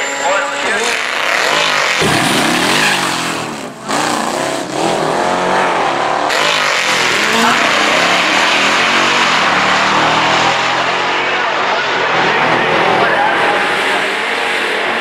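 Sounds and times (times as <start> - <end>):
car engine revving: 0.0 - 15.0
motorcycle engine revving: 0.7 - 12.0.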